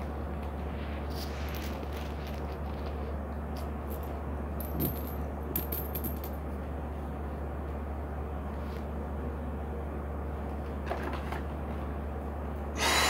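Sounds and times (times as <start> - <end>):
steady low hum: 0.0 - 13.0
coins clinking onto carpet: 1.1 - 2.9, 3.6 - 6.4.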